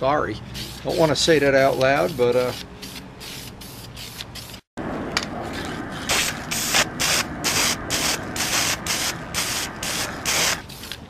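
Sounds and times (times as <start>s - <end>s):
spray can hissing in bursts: 0.6s - 1.2s, 2.1s - 4.6s, 6.1s - 11.0s.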